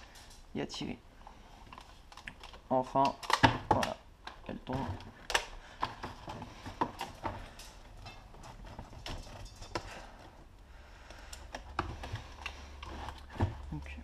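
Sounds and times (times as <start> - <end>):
plastic toy gun clicks and knocks: 2.1 - 6.0.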